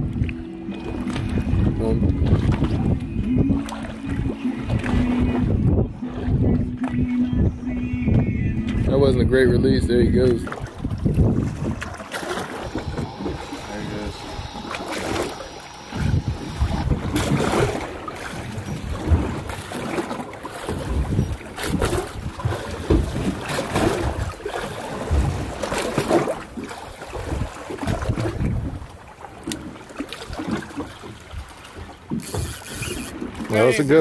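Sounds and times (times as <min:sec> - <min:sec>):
water lapping against boat hull: 0:00.0 - 0:34.0
wind gusting on microphone: 0:01.1 - 0:20.1, 0:20.7 - 0:25.8, 0:27.2 - 0:29.0.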